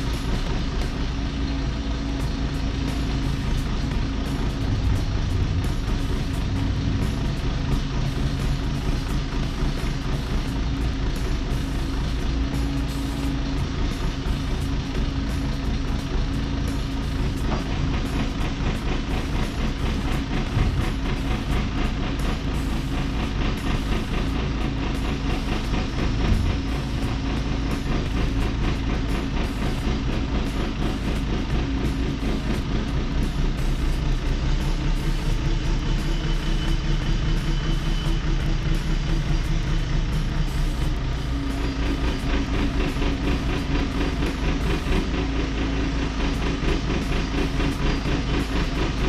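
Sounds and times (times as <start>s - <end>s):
diesel engine running: 0.0s - 49.0s.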